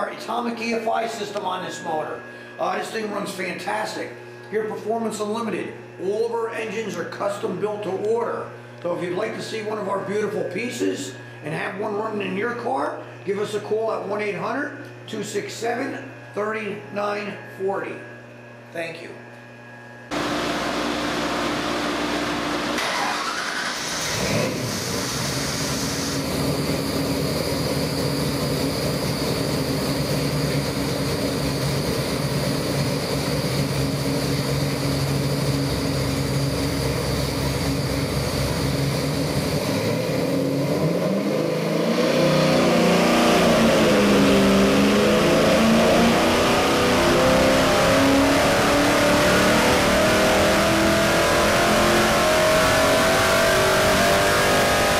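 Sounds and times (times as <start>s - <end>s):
car engine revving on dyno: 20.1s - 54.9s.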